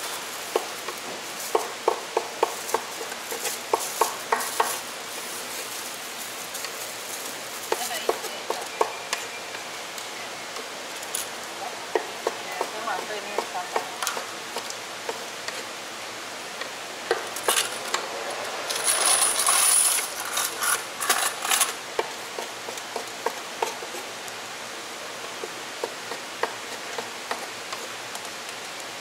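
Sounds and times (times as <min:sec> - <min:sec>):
cleaver chopping on wooden board: 0:01.5 - 0:04.8.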